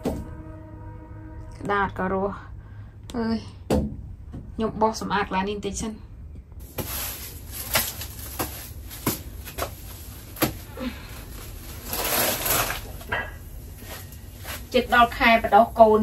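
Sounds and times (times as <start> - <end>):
soil scraping in plastic crate: 11.7 - 13.2.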